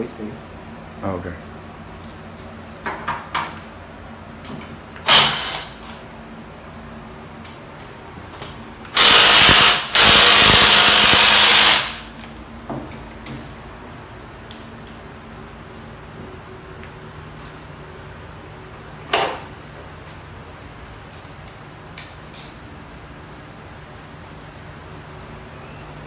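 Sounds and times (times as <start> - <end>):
power tool bursts: 5.0 - 5.8, 8.9 - 12.1
knocks and clicks of tool work: 19.0 - 19.5.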